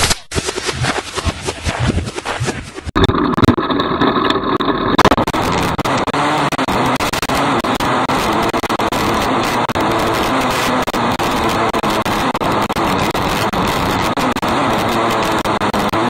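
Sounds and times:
constant rush of noise: 0:00.0 - 0:03.1
racing car engine running hard: 0:04.6 - 0:16.0.

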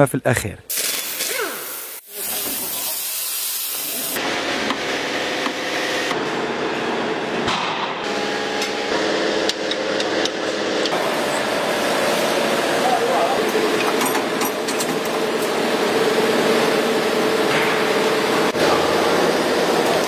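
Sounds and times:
steady workshop hiss: 0:00.7 - 0:04.2.

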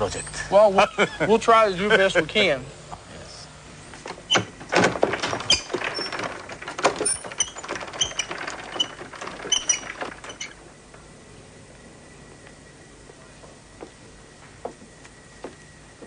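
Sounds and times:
mobile shelving rolling on tracks: 0:04.0 - 0:11.0.

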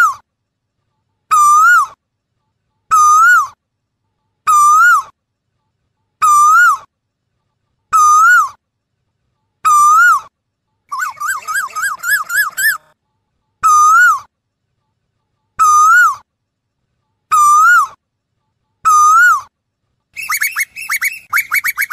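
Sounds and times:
koel calling: 0:10.9 - 0:12.9, 0:20.2 - 0:21.9.

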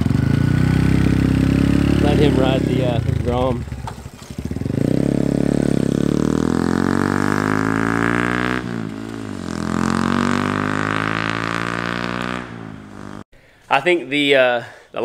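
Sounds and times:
motorcycle engine accelerating: 0:00.0 - 0:13.3.

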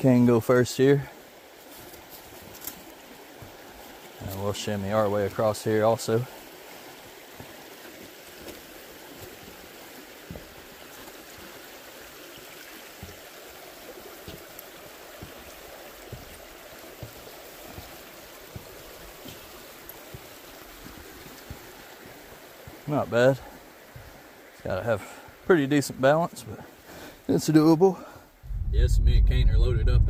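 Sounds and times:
creek water flowing: 0:00.0 - 0:28.5
light knocks and taps: 0:10.3 - 0:10.6, 0:13.0 - 0:13.3, 0:14.2 - 0:22.8.

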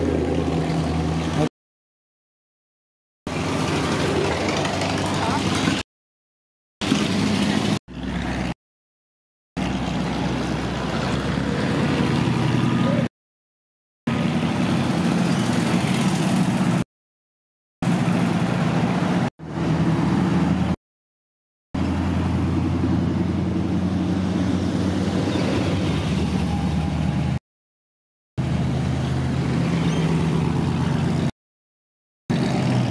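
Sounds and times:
cars driving past: 0:09.6 - 0:13.1, 0:21.8 - 0:27.4, 0:28.4 - 0:31.3.

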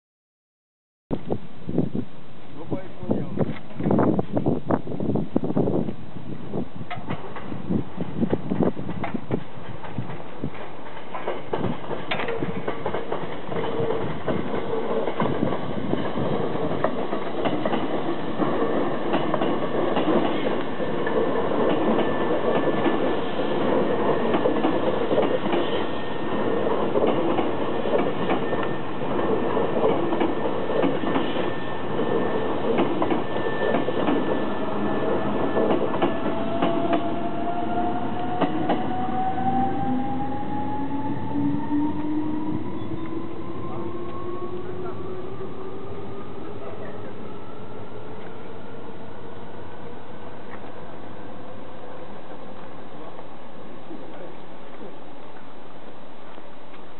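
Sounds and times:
train wheels clicking over rail joints: 0:06.9 - 0:39.4
electric train motor whine: 0:31.2 - 0:50.6.

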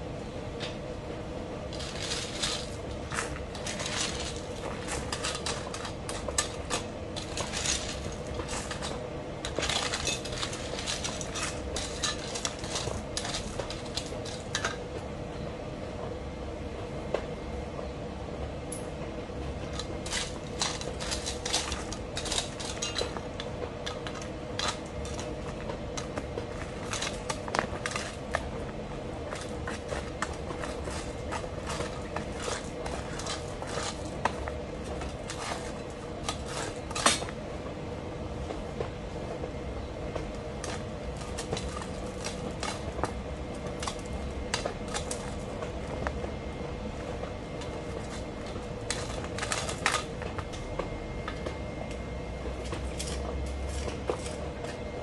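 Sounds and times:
faint hum: 0:00.0 - 0:55.0
trowel scraping gravel and stones: 0:01.7 - 0:14.8, 0:19.6 - 0:28.5, 0:29.2 - 0:37.4, 0:40.6 - 0:46.1, 0:47.6 - 0:50.1.

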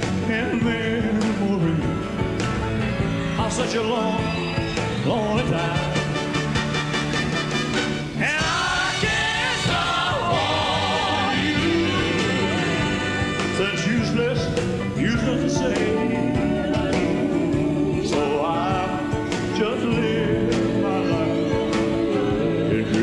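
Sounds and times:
live band playing a ballad: 0:00.0 - 0:23.0
person singing: 0:08.2 - 0:23.0.

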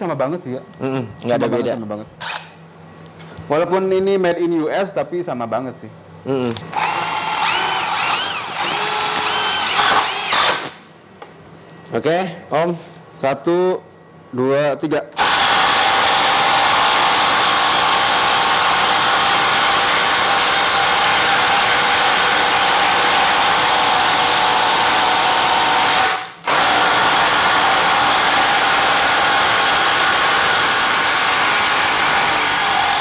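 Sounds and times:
impact drivers driving into wood: 0:02.2 - 0:02.6, 0:06.7 - 0:10.8, 0:21.8 - 0:33.0.

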